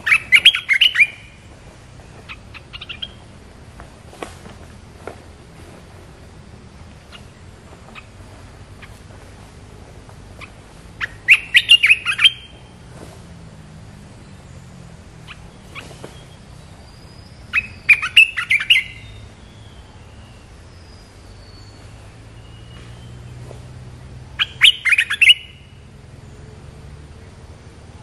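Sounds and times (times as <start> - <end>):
bird chattering song: 0.0 - 3.4, 6.8 - 12.9, 14.0 - 26.5.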